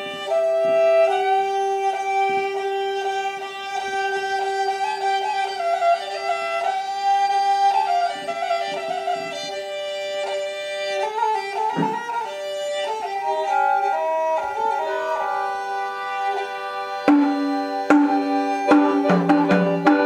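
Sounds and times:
bowed fiddle melody: 0.0s - 20.0s
electronic keyboard accompaniment: 11.0s - 20.0s
steady held note: 11.5s - 20.0s.

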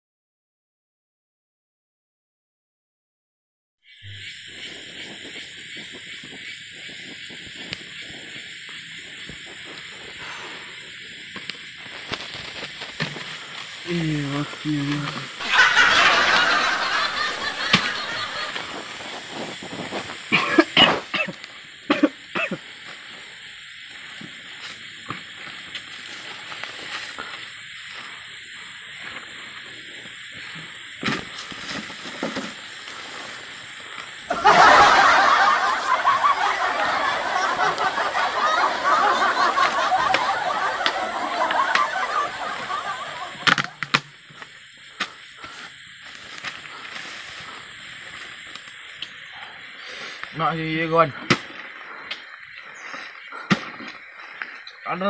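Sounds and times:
outdoor background: 3.8s - 55.0s
young men laughing: 13.9s - 19.4s, 34.3s - 43.7s
man coughing: 20.3s - 22.6s.

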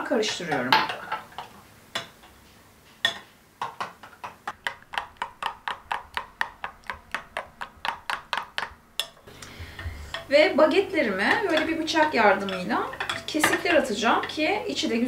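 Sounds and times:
utensil beating sauce in glass bowl: 3.6s - 14.8s.

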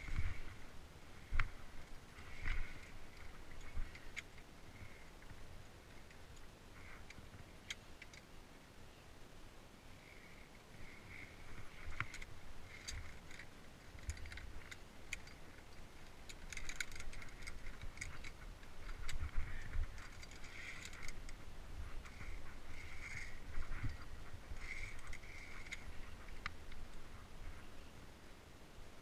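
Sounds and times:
carabiners clinking on steel cable: 11.0s - 21.4s, 22.0s - 26.9s.

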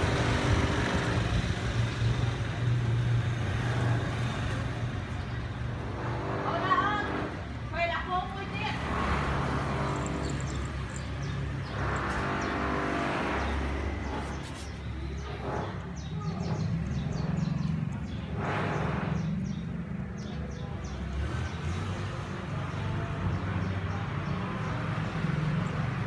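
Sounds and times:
low rumble of road traffic: 0.0s - 26.0s.

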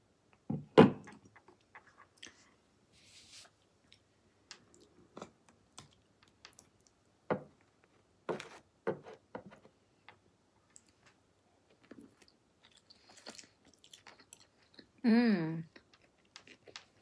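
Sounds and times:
soft chewing and mouth smacks: 1.4s - 2.6s, 3.5s - 7.0s, 10.6s - 15.0s, 15.6s - 17.0s.

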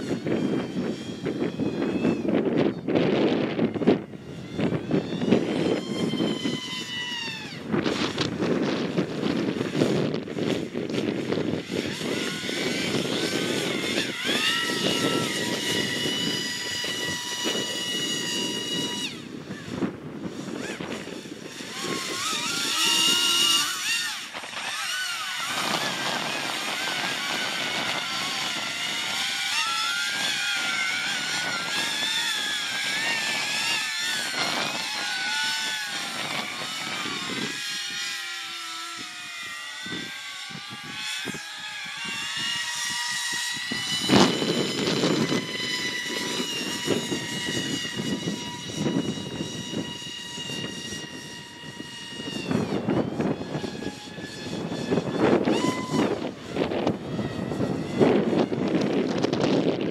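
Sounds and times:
electric ducted fans whining: 0.0s - 59.9s
wind buffeting microphone: 0.0s - 59.9s.

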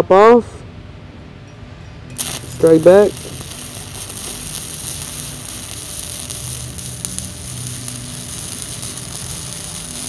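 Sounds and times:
welding arc crackling: 2.2s - 10.0s.

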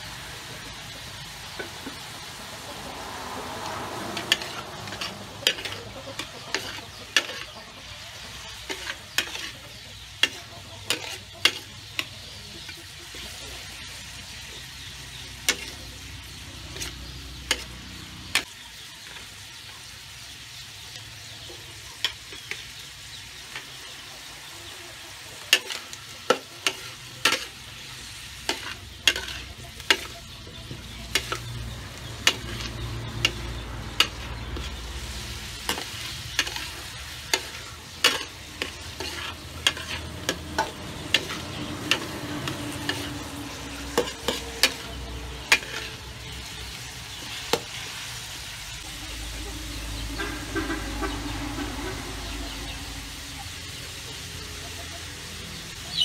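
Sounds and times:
vegetables sizzling in a wok: 0.0s - 56.0s
metal spatula clanking on pan: 4.1s - 13.4s, 15.4s - 18.5s, 25.5s - 27.8s, 28.4s - 34.9s, 35.5s - 46.7s.

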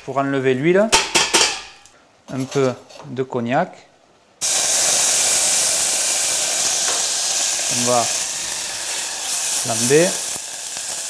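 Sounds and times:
liquid sizzling in hot pan: 4.4s - 11.0s.

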